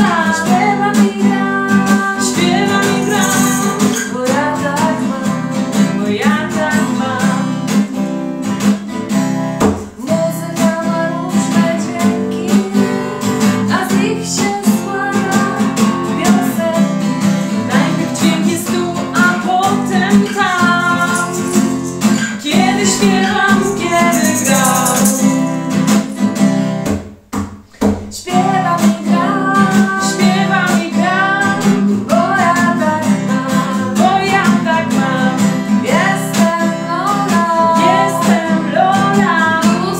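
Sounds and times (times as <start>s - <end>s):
women singing: 0.0s - 7.9s, 9.9s - 26.3s, 28.1s - 39.9s
acoustic guitar strumming: 0.0s - 39.9s.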